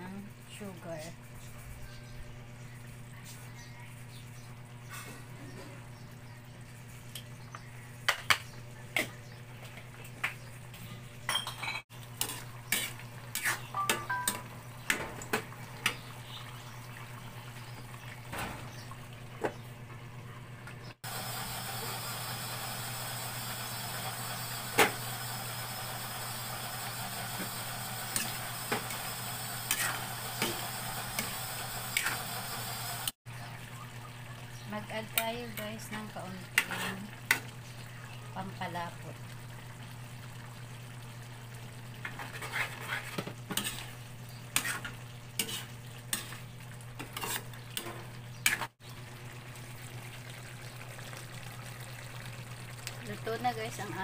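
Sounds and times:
metal ladle scraping a wok: 12.2s - 13.7s, 29.6s - 30.1s, 42.1s - 46.4s, 47.0s - 48.7s
stew simmering hiss: 21.0s - 33.2s.

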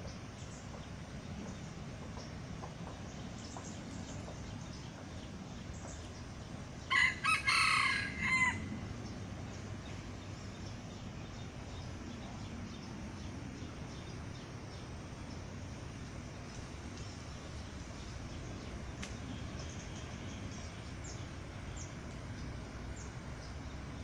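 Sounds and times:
low background rumble: 0.0s - 24.0s
rooster crowing: 6.9s - 8.8s.

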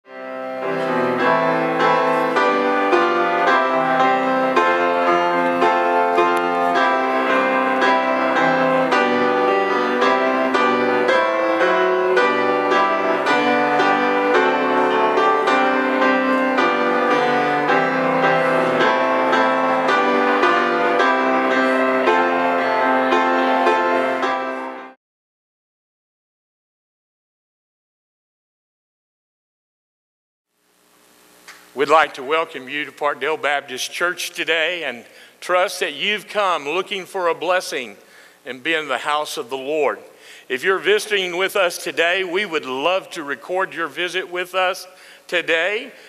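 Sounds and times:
piano music: 0.1s - 25.0s, 40.6s - 44.8s.

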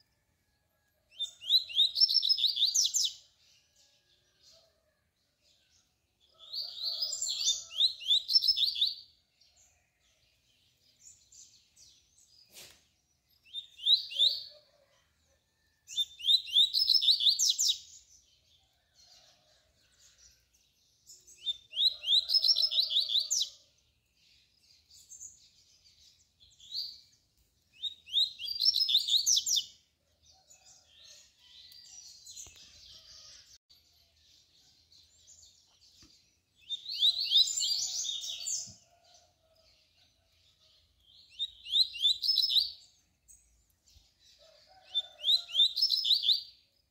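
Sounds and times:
bird singing high phrases: 1.2s - 3.3s, 6.6s - 9.2s, 12.6s - 14.6s, 16.0s - 18.0s, 27.8s - 29.8s, 36.6s - 38.8s, 41.0s - 43.0s.

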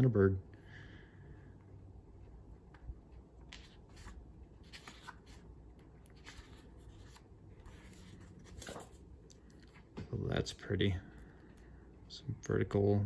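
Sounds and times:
paper sheet rustling: 3.5s - 9.1s.

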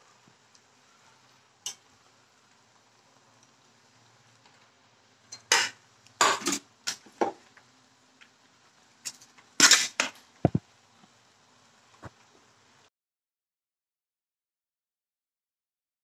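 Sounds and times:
utensils clattering and scraping: 9.1s - 10.2s.

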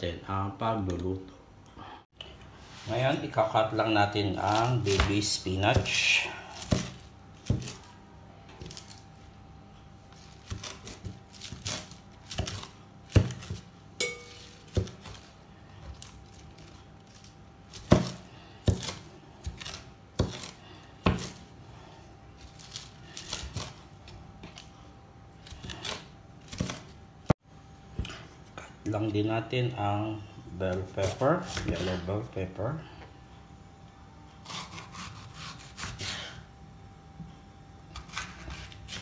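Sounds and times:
knife chopping on wooden board: 4.6s - 7.9s, 10.4s - 15.2s, 17.8s - 21.4s.

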